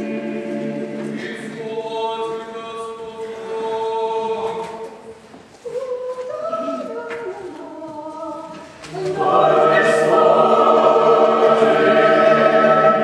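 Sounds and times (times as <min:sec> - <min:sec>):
choir singing unaccompanied chant: 0:00.0 - 0:05.1, 0:08.9 - 0:13.0.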